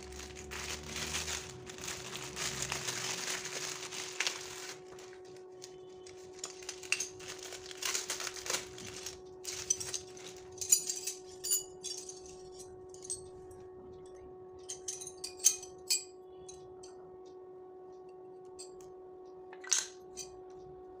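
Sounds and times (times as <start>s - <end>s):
plastic packaging crinkling: 0.0s - 10.9s
metal chime tubes clinking: 6.3s - 13.6s, 14.6s - 16.6s.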